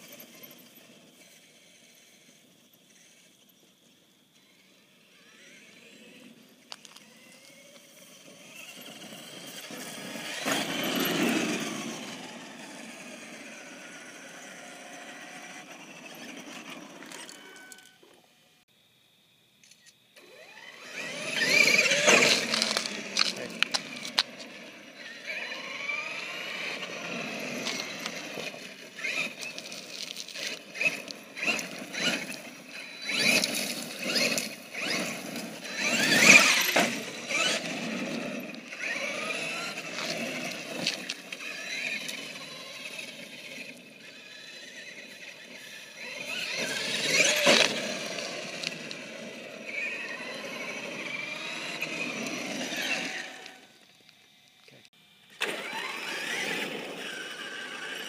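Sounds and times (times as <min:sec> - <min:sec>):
tyres on gravel: 0:00.0 - 0:18.6, 0:20.2 - 0:58.0
electric motor whine: 0:00.0 - 0:19.0, 0:20.1 - 0:58.0.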